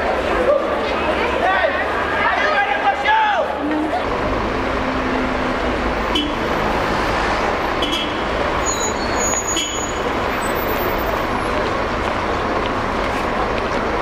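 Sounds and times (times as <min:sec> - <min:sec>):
city traffic rumble: 0:00.0 - 0:14.0
brief high squeaks: 0:08.6 - 0:10.0.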